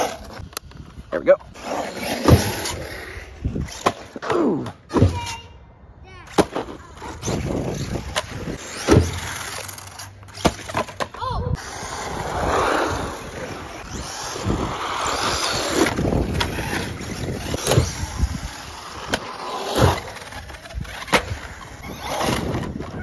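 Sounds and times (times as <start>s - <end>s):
rc truck motor running: 7.0s - 10.8s, 11.6s - 23.0s.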